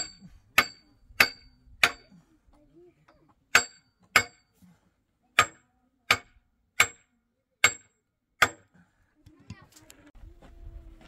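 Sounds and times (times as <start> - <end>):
hammer striking metal: 0.0 - 2.1, 3.5 - 4.5, 5.4 - 8.7.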